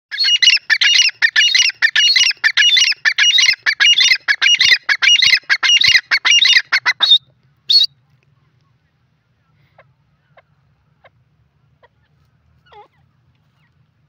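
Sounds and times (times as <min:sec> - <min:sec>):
bird calling repeated notes: 0:00.1 - 0:08.0.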